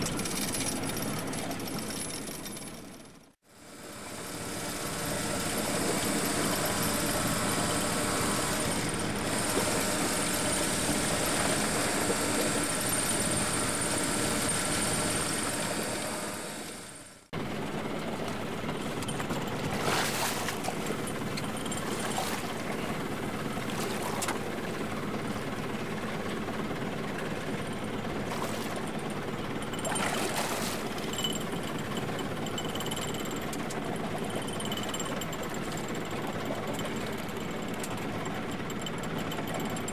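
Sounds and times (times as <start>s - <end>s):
powered fishing reel running: 3.9s - 17.2s.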